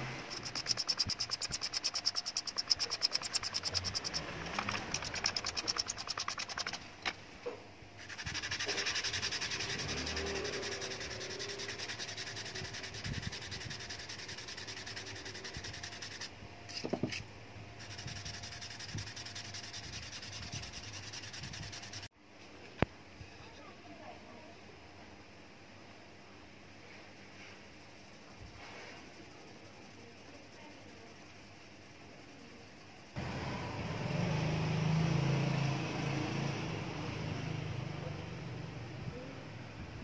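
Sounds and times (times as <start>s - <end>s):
wooden handle rubbed on sandpaper: 0.3s - 6.8s, 8.0s - 17.2s, 17.8s - 22.1s.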